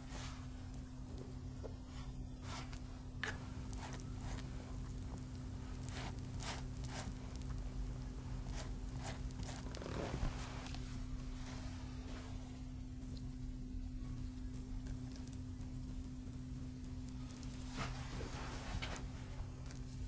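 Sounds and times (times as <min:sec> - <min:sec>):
steady low hum: 0:00.0 - 0:20.0
soft rustles and light taps: 0:17.6 - 0:19.9.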